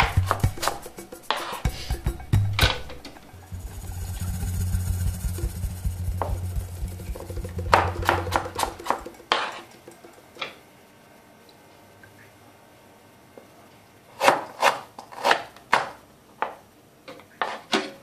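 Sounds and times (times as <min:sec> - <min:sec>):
steady low hum: 0:00.0 - 0:11.3.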